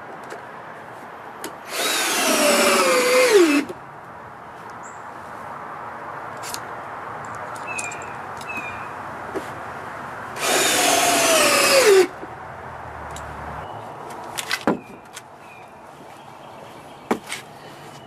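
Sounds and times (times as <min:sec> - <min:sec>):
power drill driving screw: 0:01.7 - 0:03.7, 0:10.4 - 0:12.1.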